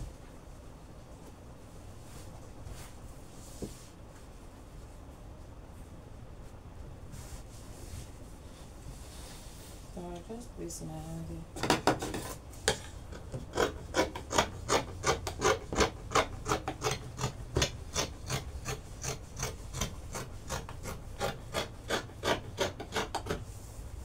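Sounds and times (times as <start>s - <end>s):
shears snipping fabric: 13.5s - 23.4s.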